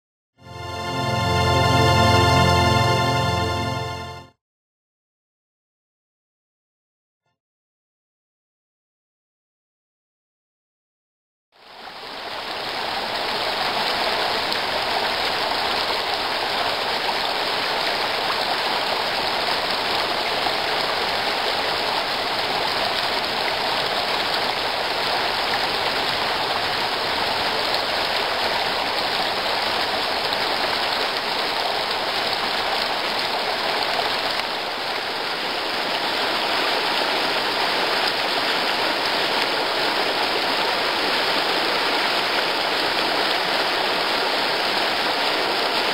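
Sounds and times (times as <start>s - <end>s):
stream flowing over stones: 11.6s - 45.9s.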